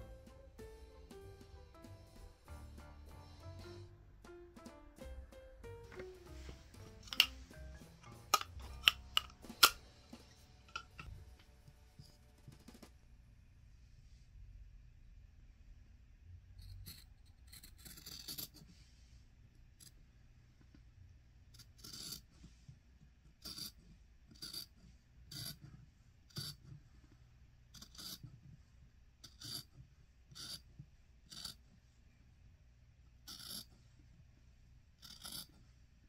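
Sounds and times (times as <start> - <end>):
low steady hum: 0.0 - 17.7.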